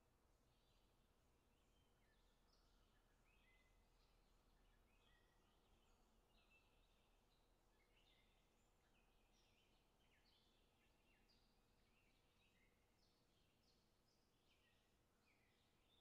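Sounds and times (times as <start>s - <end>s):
faint birdsong chirps: 0.0s - 16.0s.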